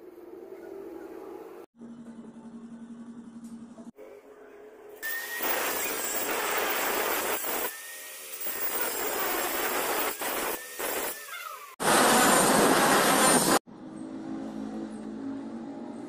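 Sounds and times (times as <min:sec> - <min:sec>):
angle grinder cutting steel tube: 0:05.0 - 0:13.6.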